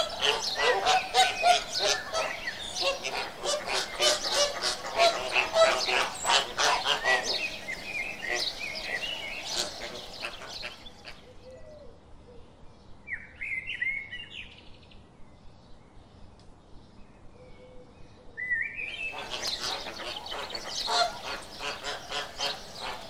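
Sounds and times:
flamingos honking: 0.0 - 11.2, 19.1 - 23.0.

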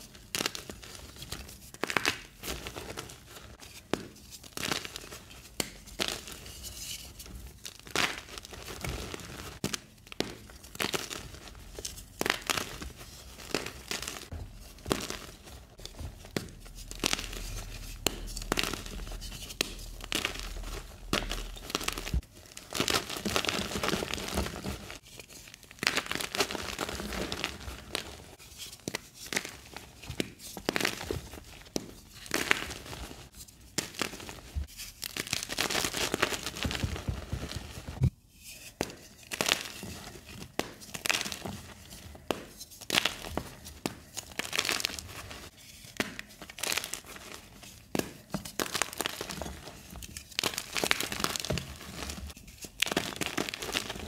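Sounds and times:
dry chalk crumbling: 0.3 - 54.0
chalk crunching and snapping: 7.7 - 38.1, 42.2 - 54.0.

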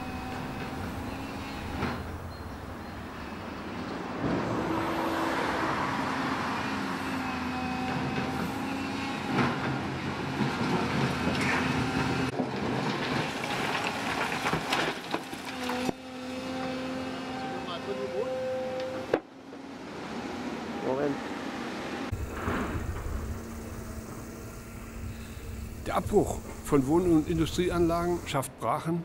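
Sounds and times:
excavator diesel engines running: 0.0 - 21.2, 22.1 - 28.6
concrete rubble clattering: 12.3 - 15.9.

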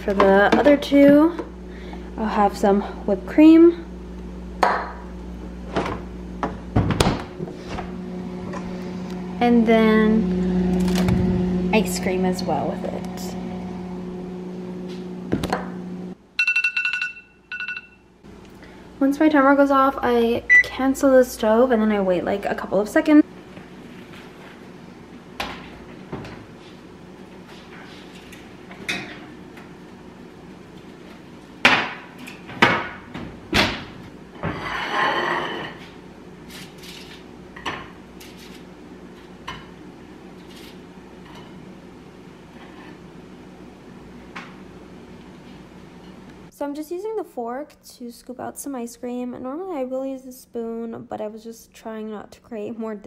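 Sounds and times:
steady low hum: 0.0 - 53.0
phone timer alarm beeping: 16.4 - 18.0, 20.5 - 20.7.

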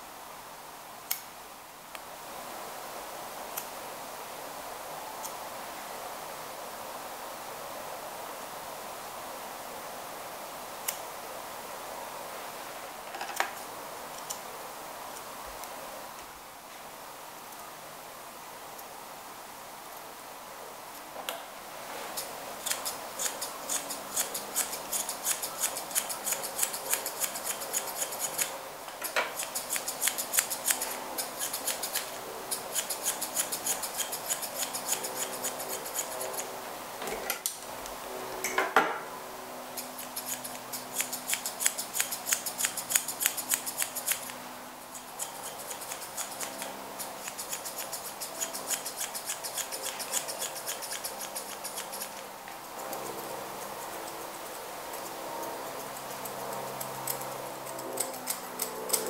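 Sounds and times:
scissors snipping fur: 22.2 - 36.5, 39.8 - 59.0.

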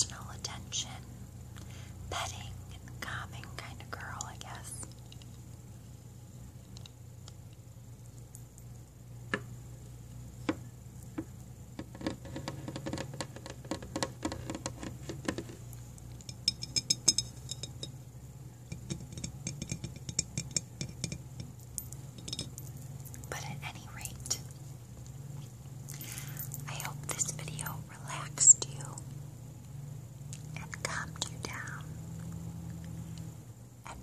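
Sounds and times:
fingernails tapping on camera: 11.8 - 15.6
glassy clinks: 16.3 - 18.0, 19.1 - 23.2.

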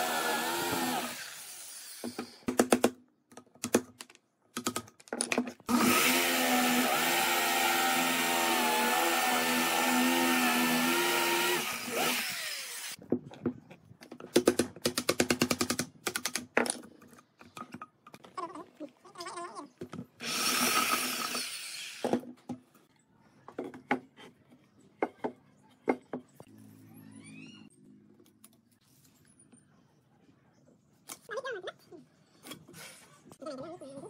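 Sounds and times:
electric drill boring into wood: 0.0 - 2.2, 5.7 - 13.0, 20.2 - 22.1.

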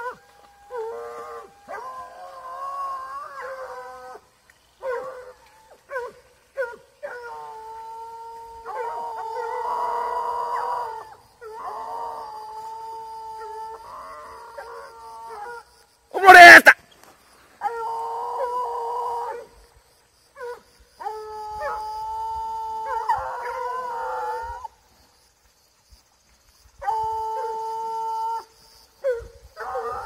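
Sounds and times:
dogs yelping: 0.0 - 4.2, 29.0 - 30.0
hounds howling: 0.0 - 16.6, 17.6 - 19.7, 20.4 - 24.8, 26.8 - 30.0.

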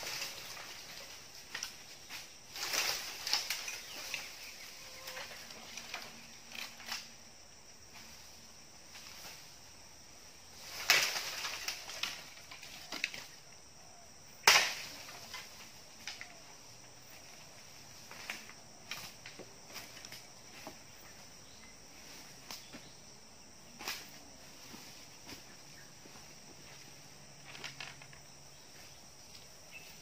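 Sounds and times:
bamboo poles cracking: 0.0 - 4.4, 5.0 - 7.2, 10.6 - 13.4, 14.4 - 16.4.

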